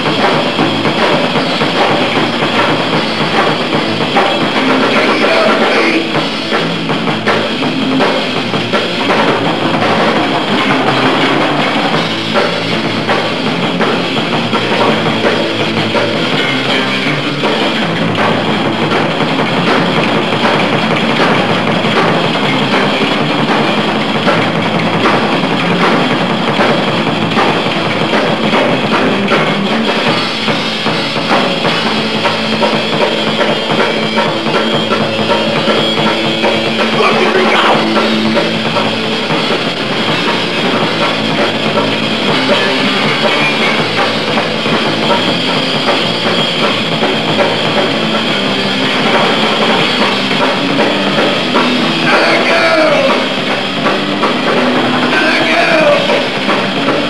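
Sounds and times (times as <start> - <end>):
bass guitar: 0.0 - 57.0
distorted electric guitar: 0.0 - 57.0
pounding drum kit: 0.0 - 57.0.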